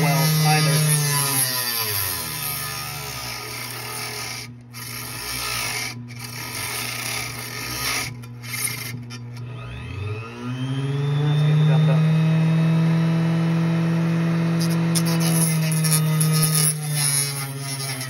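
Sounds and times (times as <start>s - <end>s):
blade rasping through plastic: 0.0s - 9.4s, 14.6s - 18.0s
power tool motor hum: 0.0s - 18.0s.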